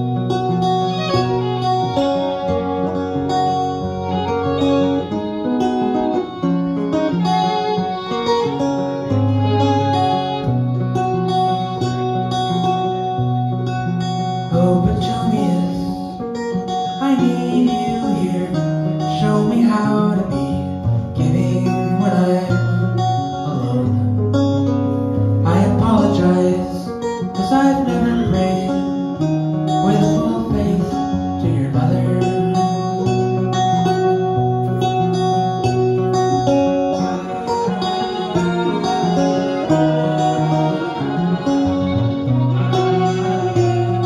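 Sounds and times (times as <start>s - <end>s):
acoustic guitar strumming: 0.0s - 44.0s
violin melody: 0.0s - 44.0s.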